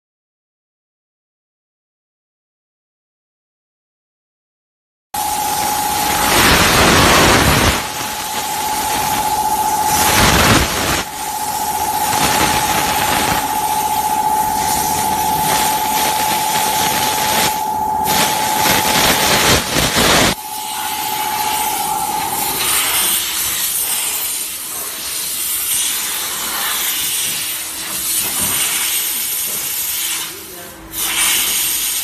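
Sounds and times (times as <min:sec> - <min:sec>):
low machine rumble: 0:05.2 - 0:23.4
machine whine: 0:05.2 - 0:28.6
steam wand hissing: 0:05.2 - 0:32.0.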